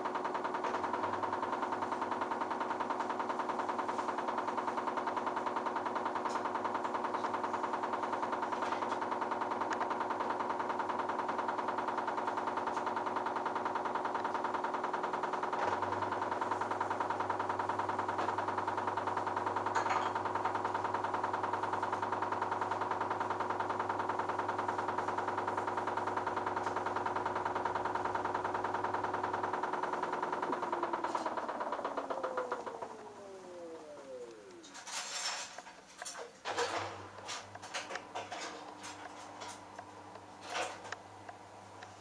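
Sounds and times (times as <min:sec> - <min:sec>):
motor whine: 0:00.0 - 0:35.2
washing machine drum spinning: 0:00.0 - 0:35.8
low hum: 0:15.0 - 0:35.1.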